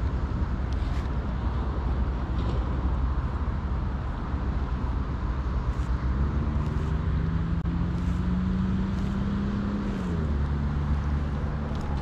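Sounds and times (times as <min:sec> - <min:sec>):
vehicle engine droning past: 0:06.0 - 0:12.0.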